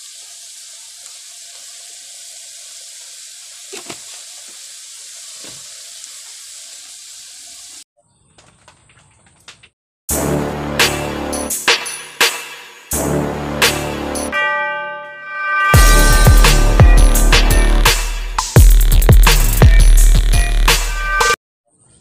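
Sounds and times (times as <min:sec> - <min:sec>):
snails sizzling in a wok: 0:00.0 - 0:07.8.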